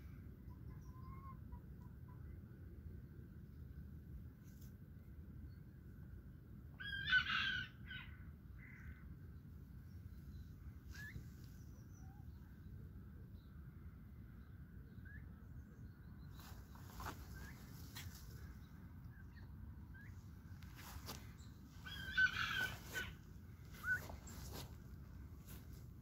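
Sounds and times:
low steady background noise: 0.0 - 26.0
turkeys calling: 21.8 - 24.7.

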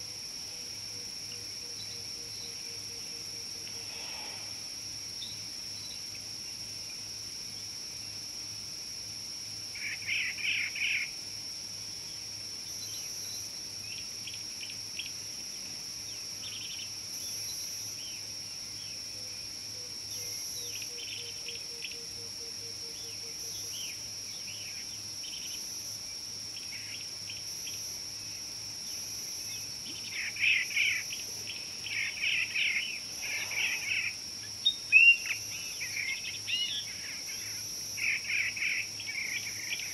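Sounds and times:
high-pitched insect drone: 0.0 - 6.3, 16.0 - 39.9.

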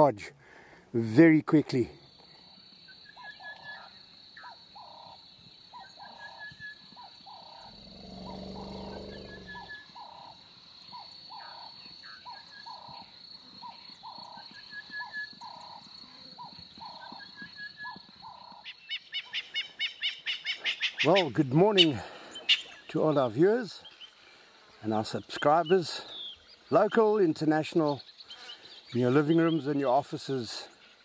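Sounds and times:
high insect trill: 2.0 - 21.8
lion roaring: 7.4 - 9.8.

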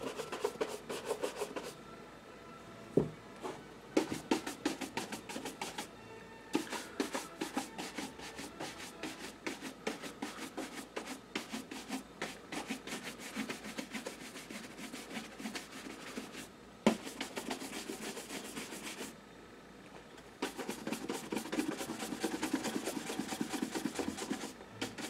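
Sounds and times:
brush scratching leather shoe: 0.0 - 1.8, 4.0 - 5.9, 6.6 - 19.1, 20.4 - 25.0.

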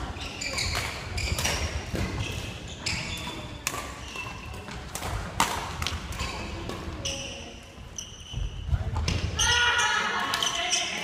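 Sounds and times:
shoes squeaking on wooden floor: 0.2 - 4.8, 6.2 - 8.9
racket hitting shuttlecock: 0.4 - 7.0.

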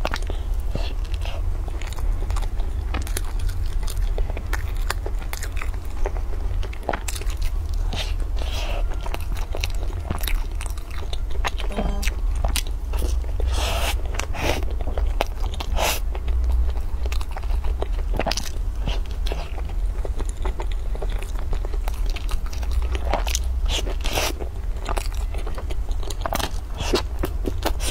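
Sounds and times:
chewing bread: 0.0 - 27.9
low hum: 6.6 - 14.2.

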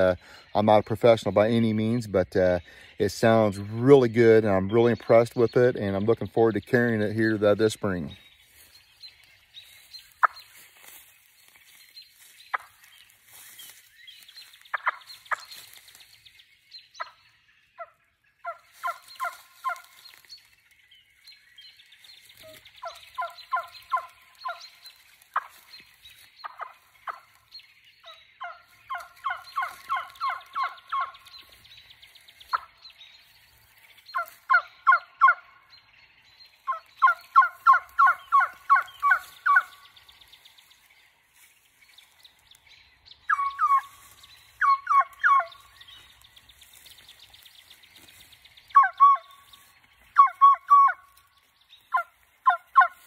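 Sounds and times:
turkey call yelps: 22.4 - 24.6, 28.0 - 31.3, 34.2 - 35.5, 36.7 - 39.7, 43.3 - 44.0, 44.6 - 45.6, 48.7 - 49.5, 50.2 - 51.1, 51.9 - 53.0.

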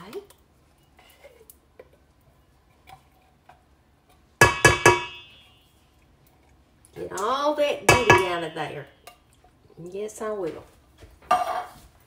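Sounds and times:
metal can knocking on bowl: 4.4 - 5.3, 7.9 - 8.4.

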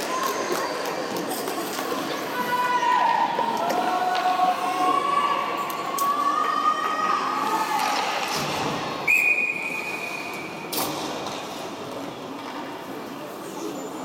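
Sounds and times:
crowd hubbub: 0.0 - 14.0.

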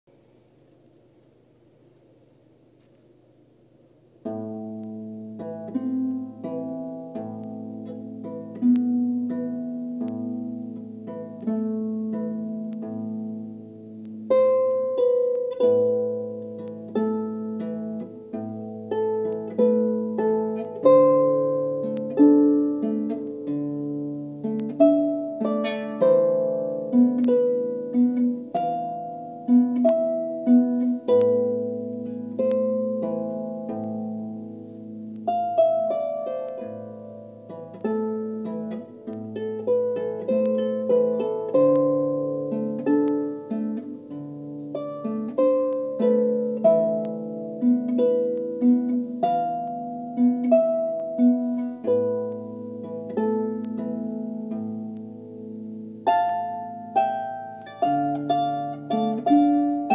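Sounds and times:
solo harp plucked melody: 4.2 - 59.9.

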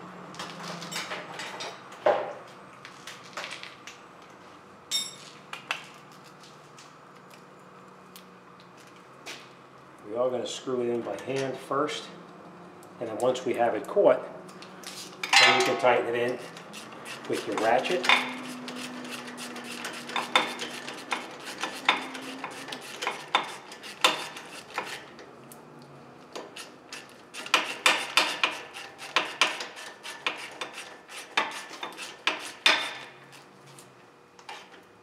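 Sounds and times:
metal tools clinking: 4.9 - 5.3, 15.2 - 15.9.

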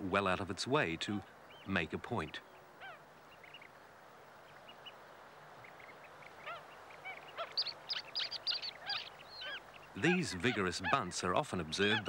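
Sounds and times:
birds chirping: 0.0 - 12.0
faint steady hiss: 0.0 - 12.0.

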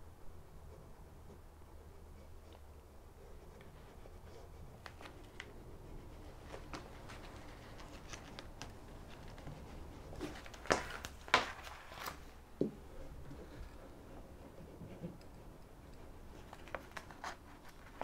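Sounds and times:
coated fabric rustling and scraping: 6.2 - 12.4.

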